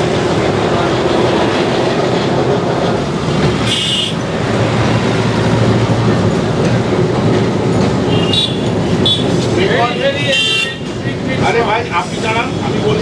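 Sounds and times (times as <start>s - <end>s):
tram rumbling and rattling on rails: 0.0s - 13.0s.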